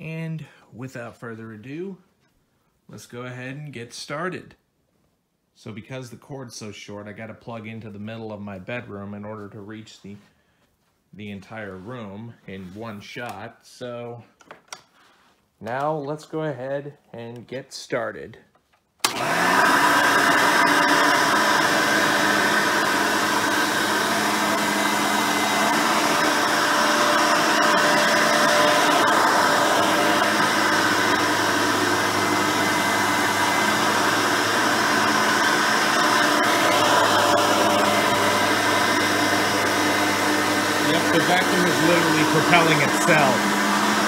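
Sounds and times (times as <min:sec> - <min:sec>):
vacuum cleaner running on carpet: 0:19.1 - 0:44.0.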